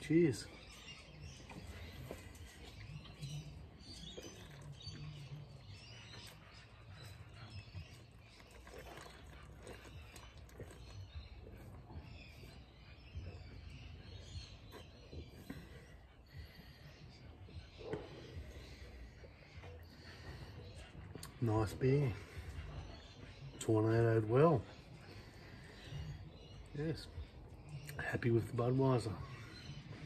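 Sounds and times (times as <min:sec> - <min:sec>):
birds chirping: 0:00.0 - 0:30.0
quiet gulping: 0:01.0 - 0:21.5.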